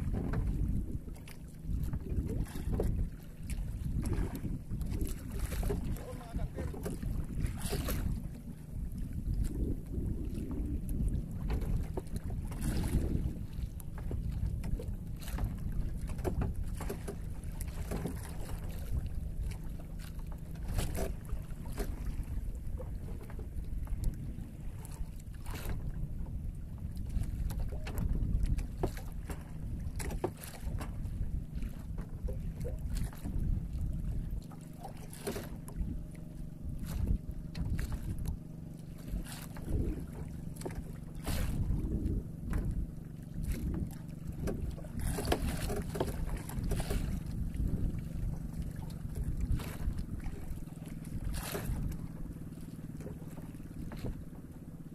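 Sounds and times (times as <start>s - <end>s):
wind on microphone: 0.0s - 52.4s
boat motor running: 0.0s - 54.9s.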